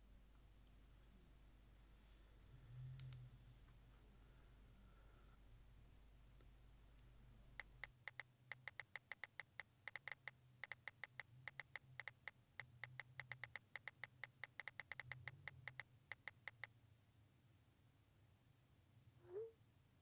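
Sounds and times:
phone keyboard clicks: 7.6 - 16.7.

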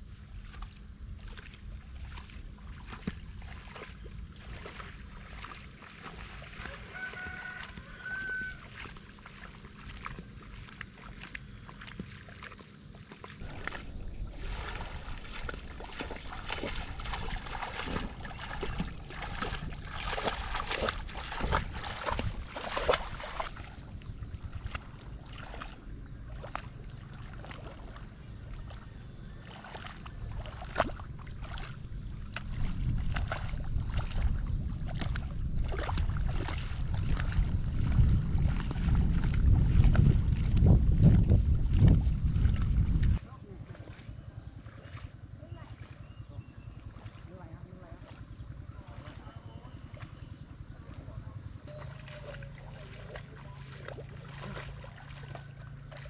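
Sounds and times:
water splashing from wading: 0.1 - 56.0
object dragged through mud: 13.3 - 23.7.

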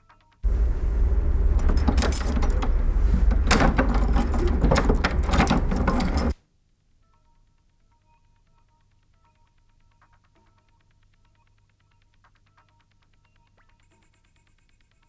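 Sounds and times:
low rumble: 0.4 - 6.3
keys rattling: 1.4 - 6.4
key turning in door lock: 1.5 - 6.4.

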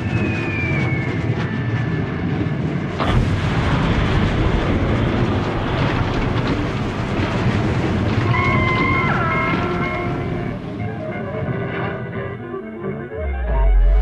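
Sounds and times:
cartoon explosions: 0.0 - 12.1.

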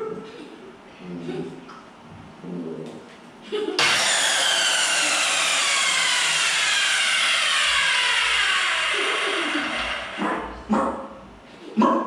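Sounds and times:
loud machine whine: 3.8 - 10.7.

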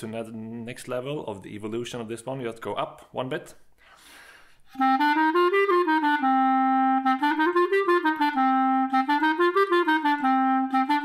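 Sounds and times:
clarinet playing scale: 4.7 - 11.0.

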